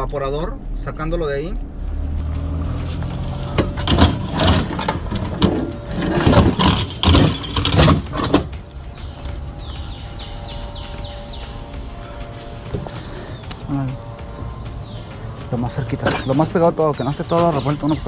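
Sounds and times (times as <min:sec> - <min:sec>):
low motor hum: 0:00.0 - 0:18.0
sheet metal clattering and scraping: 0:02.9 - 0:08.6.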